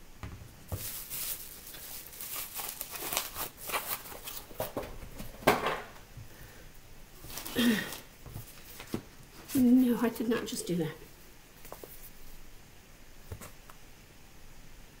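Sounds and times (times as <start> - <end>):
packaging rustling and crinkling: 0.7 - 5.5, 7.2 - 9.7.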